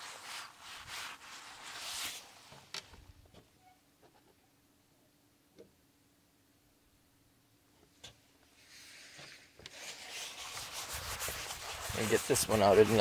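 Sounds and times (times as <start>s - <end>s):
rustling handling noise: 0.0s - 3.1s, 8.5s - 13.0s.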